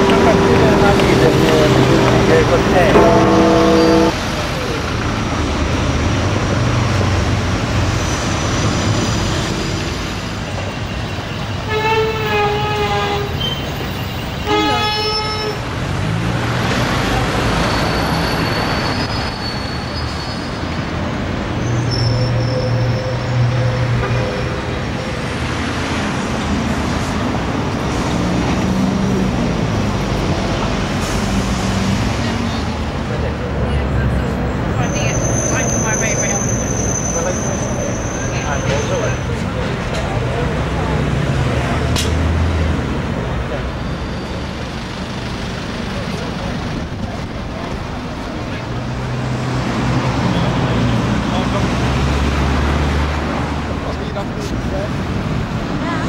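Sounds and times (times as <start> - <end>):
vehicle horn toots: 0.0 - 4.3, 11.6 - 13.6, 14.4 - 15.6
traffic rumble: 0.0 - 56.0.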